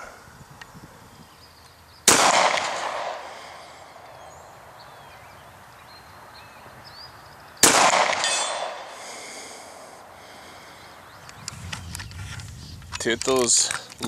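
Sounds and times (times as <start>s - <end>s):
pistol shot echoing: 2.1s - 3.6s, 7.6s - 9.0s
steel target ringing: 8.2s - 8.8s.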